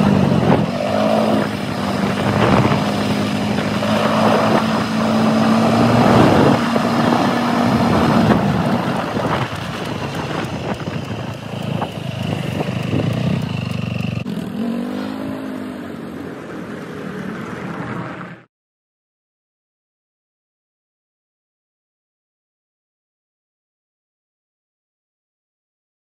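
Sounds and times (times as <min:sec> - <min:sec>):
quad bike engine running: 0:00.0 - 0:17.7.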